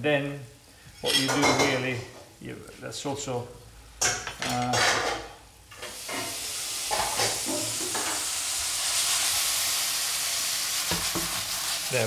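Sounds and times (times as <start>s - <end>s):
vegetables sizzling in a pan: 5.3s - 12.0s.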